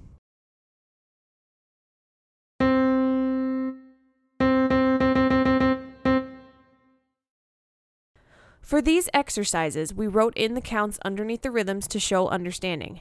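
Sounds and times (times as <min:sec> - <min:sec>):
keyboard playing repeated note: 0:02.6 - 0:07.0.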